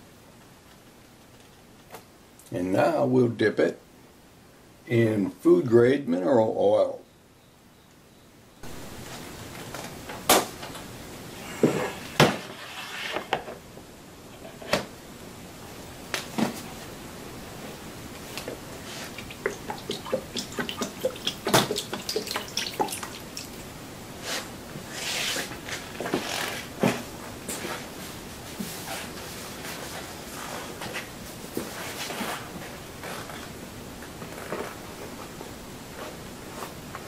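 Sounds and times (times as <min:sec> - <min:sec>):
oil dripping and splashing: 0:19.2 - 0:23.6
board knocking in tub: 0:19.4 - 0:23.2.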